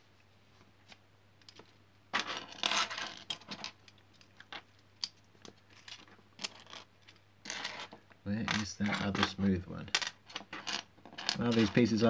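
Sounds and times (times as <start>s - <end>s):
plastic bricks clattering: 5.8s - 12.0s.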